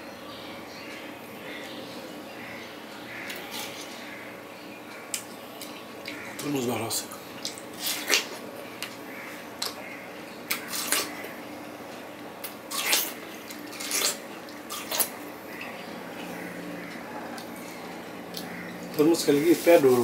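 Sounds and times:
chewing watermelon crunches: 0:07.4 - 0:09.9, 0:10.5 - 0:11.4, 0:12.6 - 0:20.0.

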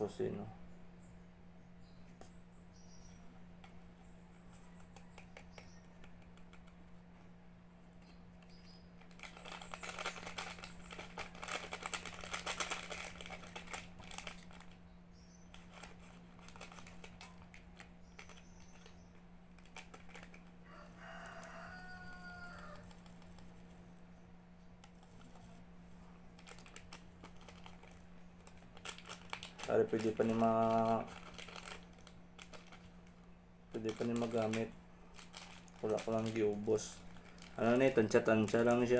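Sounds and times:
steady low hum: 0:00.0 - 0:38.9
packet crinkling: 0:09.0 - 0:14.8, 0:15.4 - 0:23.7, 0:26.2 - 0:38.9
rooster crowing: 0:20.6 - 0:23.0.

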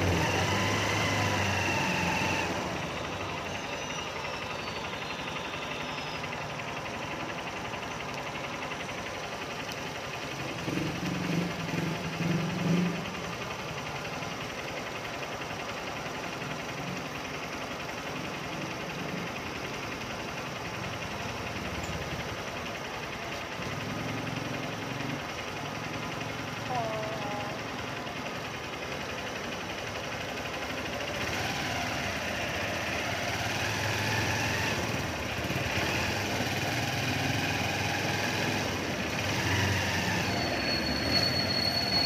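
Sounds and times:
motorcycle engine idling: 0:00.0 - 0:40.5.

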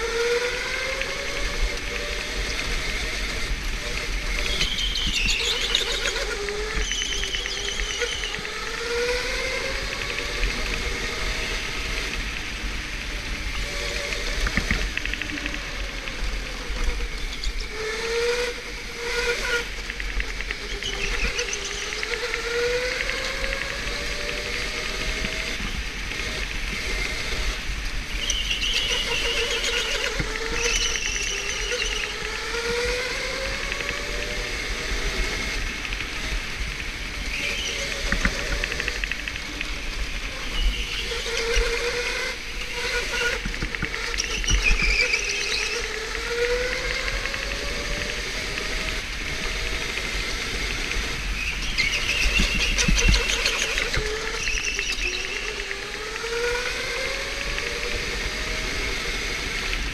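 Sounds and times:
electric go-kart motor whining: 0:00.0 - 0:59.9
tyre squeals: 0:04.5 - 0:08.4, 0:44.0 - 0:45.9.

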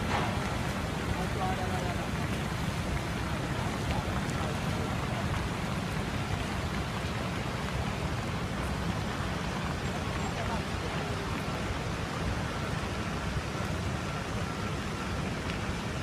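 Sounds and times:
fountain jets splashing: 0:00.0 - 0:16.0
faint crowd voices: 0:01.0 - 0:06.8, 0:08.6 - 0:15.1.

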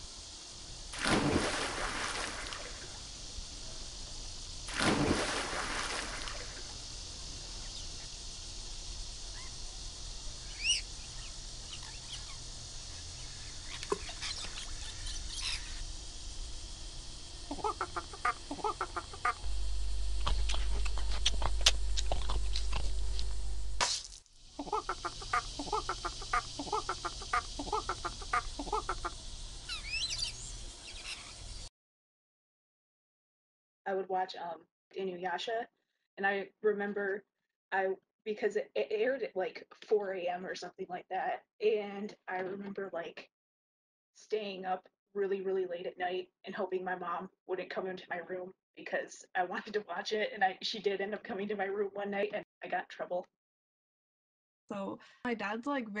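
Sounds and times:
low hum: 0:01.8 - 0:23.9, 0:24.6 - 0:31.7
rapid chattering bird-like calls: 0:09.2 - 0:15.9, 0:17.5 - 0:19.4, 0:24.6 - 0:31.7
bird chirps: 0:10.4 - 0:12.4, 0:13.0 - 0:15.8, 0:24.6 - 0:31.7.

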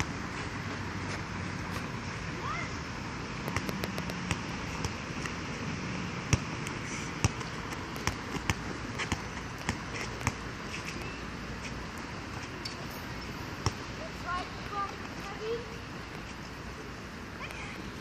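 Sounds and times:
basketball bouncing: 0:03.4 - 0:05.0, 0:06.3 - 0:10.4.

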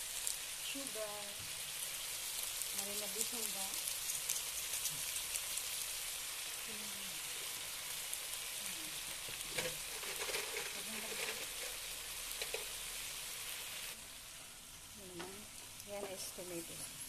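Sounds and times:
vegetables sizzling in oil: 0:00.0 - 0:17.0
spatula scraping a pan: 0:09.4 - 0:12.8.

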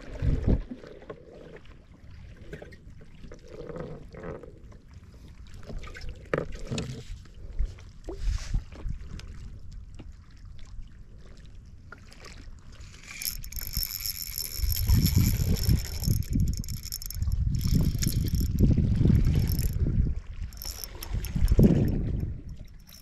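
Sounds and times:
wind on microphone: 0:00.0 - 0:00.8, 0:12.9 - 0:23.0
water against boat: 0:00.0 - 0:23.0
fishing reel whine: 0:12.8 - 0:23.0.

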